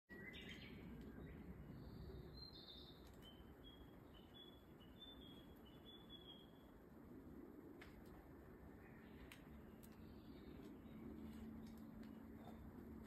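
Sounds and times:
bird song: 0.1s - 6.8s, 8.6s - 13.0s
low background rumble: 0.2s - 13.0s.

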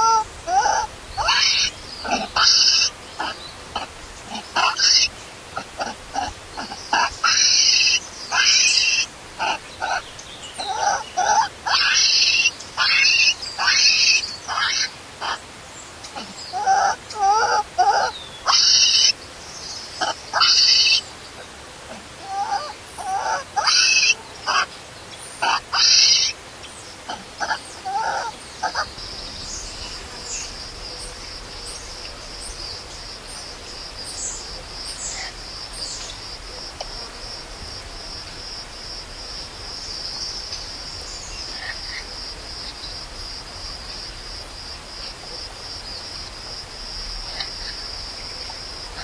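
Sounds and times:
baby monkey crying: 0.0s - 10.0s, 10.6s - 15.4s, 16.1s - 19.2s, 20.0s - 24.7s, 25.4s - 26.4s, 27.1s - 28.9s.

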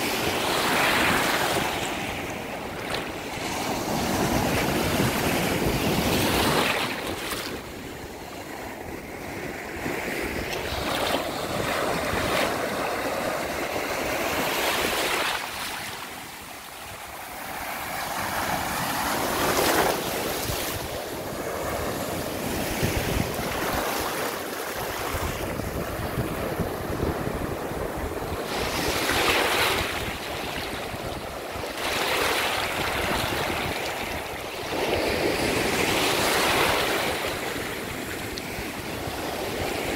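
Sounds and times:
wind buffeting microphone: 18.4s - 31.8s.

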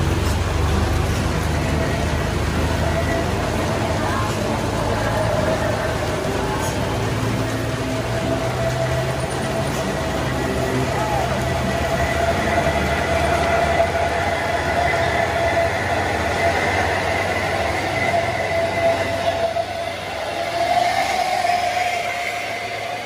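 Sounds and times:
heavy rain on wet road: 0.0s - 23.0s
high-pitched whine: 0.0s - 23.0s
truck engines droning: 0.0s - 23.0s.

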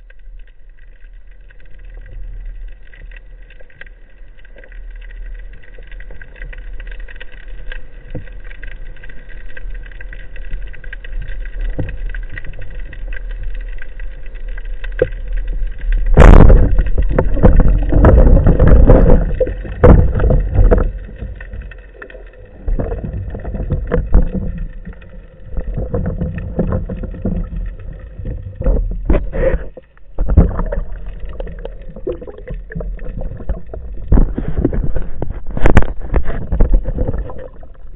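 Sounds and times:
underwater low hum: 0.0s - 37.9s
rushing water: 1.6s - 37.9s
underwater knocks: 16.0s - 37.9s.

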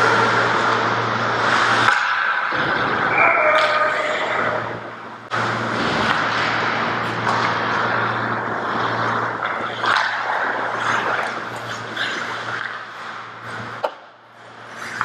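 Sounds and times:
low hum: 0.0s - 15.0s
rush of rink noise: 0.0s - 15.0s
hockey stick or puck clacks: 1.8s - 2.5s, 6.0s - 6.5s, 7.1s - 8.0s, 9.0s - 14.1s.

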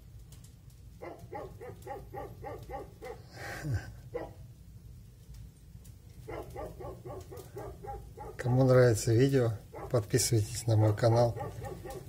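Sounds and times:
dog barking: 1.0s - 3.3s, 4.1s - 4.5s, 6.2s - 8.6s, 9.6s - 12.0s.

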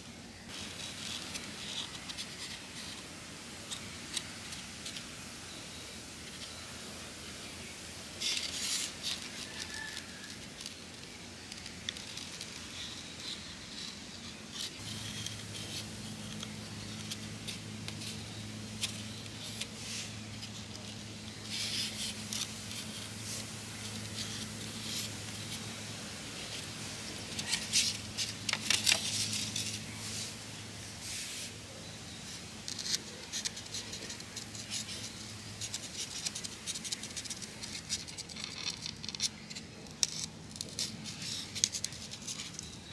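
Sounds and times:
low steady hum: 0.0s - 42.9s
plastic items being handled: 8.2s - 31.6s, 32.2s - 42.9s.

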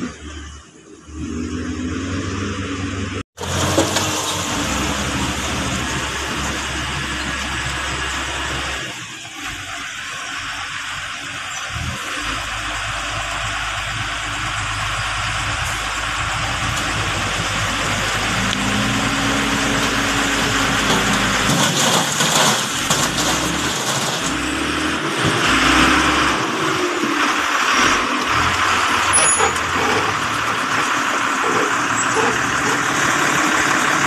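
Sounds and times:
dump truck engine running: 0.0s - 34.0s
rocks and soil sliding out: 17.9s - 26.4s.

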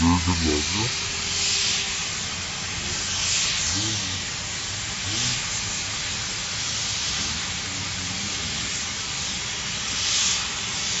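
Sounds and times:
cutting torch hissing: 0.0s - 11.0s.

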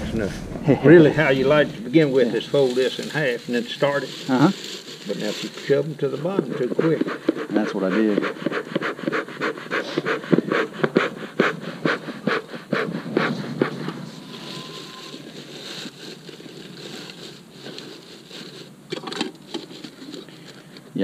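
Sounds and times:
soft hiss: 0.0s - 6.0s
bellows puffing air: 6.3s - 15.4s.

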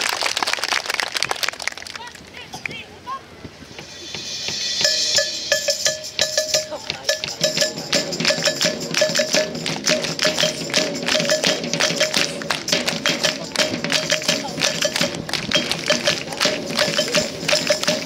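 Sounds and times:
drum strikes: 3.7s - 18.0s
staccato brass notes: 3.8s - 18.0s.

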